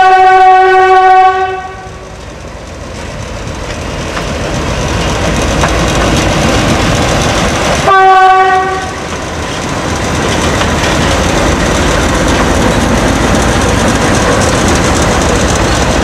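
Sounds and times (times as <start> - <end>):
locomotive air horn chord: 0.0 - 2.0, 7.8 - 9.0
train rolling on track: 0.0 - 16.0
diesel engines rumbling: 0.3 - 16.0.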